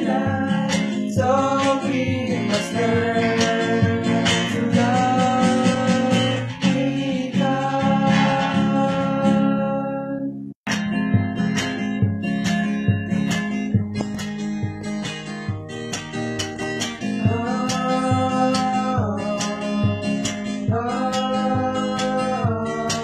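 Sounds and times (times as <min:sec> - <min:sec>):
young men singing: 0:00.0 - 0:10.1, 0:17.2 - 0:23.0
acoustic guitar strumming: 0:00.0 - 0:23.0.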